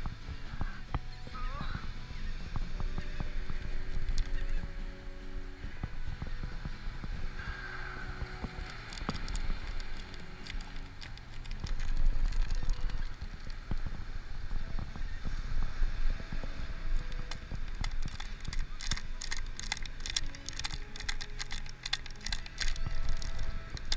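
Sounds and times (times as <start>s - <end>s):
wind buffeting microphone: 0.0s - 23.9s
gear handling clicks and knocks: 8.2s - 14.0s, 17.0s - 23.9s.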